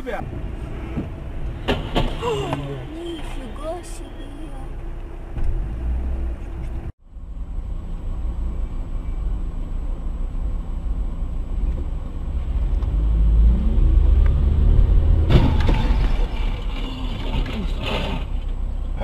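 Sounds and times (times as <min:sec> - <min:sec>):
car road and engine rumble: 0:00.0 - 0:19.0
cars colliding crash: 0:01.6 - 0:02.5, 0:15.1 - 0:18.5
scraping and debris: 0:15.0 - 0:18.6.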